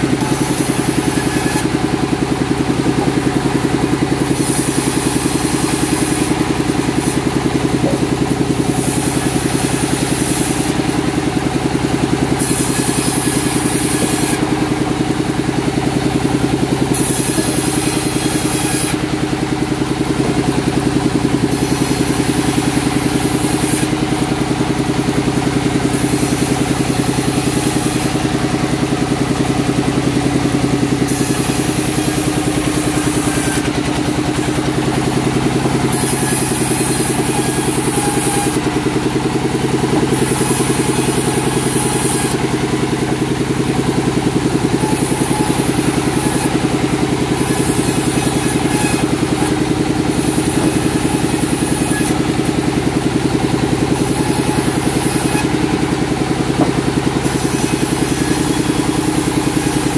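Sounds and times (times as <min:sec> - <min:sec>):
sawmill machinery droning: 0:00.0 - 0:59.9.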